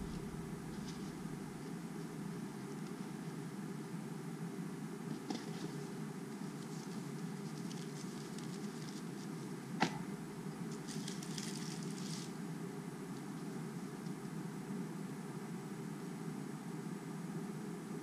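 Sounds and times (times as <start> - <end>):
low background noise: 0.0 - 18.0.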